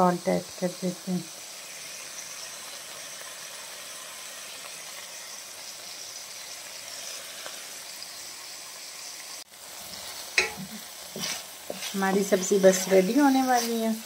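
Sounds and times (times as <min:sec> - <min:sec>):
chicken sizzling in a pan: 0:00.0 - 0:14.0.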